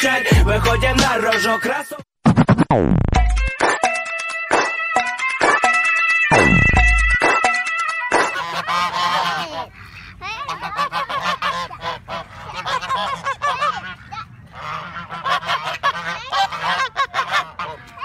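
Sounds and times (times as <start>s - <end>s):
geese honking: 7.6s - 18.0s.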